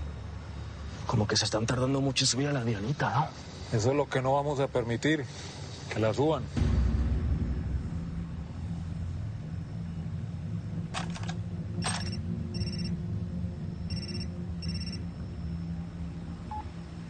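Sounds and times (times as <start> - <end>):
low steady hum: 0.0 - 17.0
mobile phone ringing: 11.8 - 12.9, 13.9 - 15.0.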